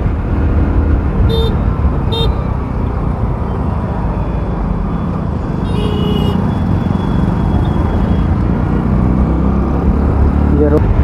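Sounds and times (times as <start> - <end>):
motorcycle engine and wind rumble: 0.0 - 11.0
vehicle horn toot: 1.3 - 2.5, 5.6 - 7.8.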